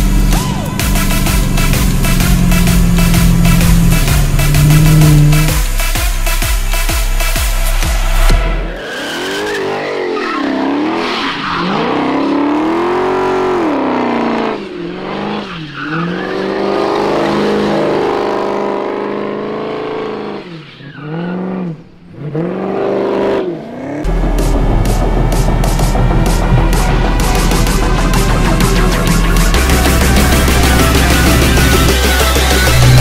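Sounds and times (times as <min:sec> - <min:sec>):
music: 0:00.0 - 0:12.1, 0:24.1 - 0:33.0
car engine revving: 0:00.0 - 0:33.0.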